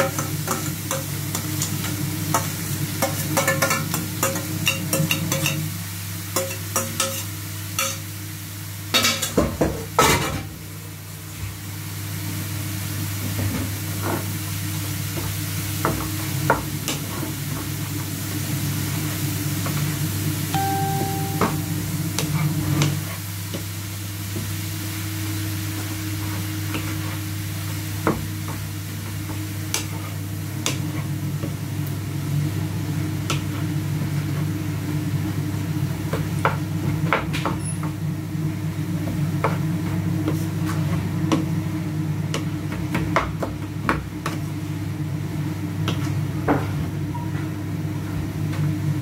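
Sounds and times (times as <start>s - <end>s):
food sizzling in a pan: 0.0s - 37.0s.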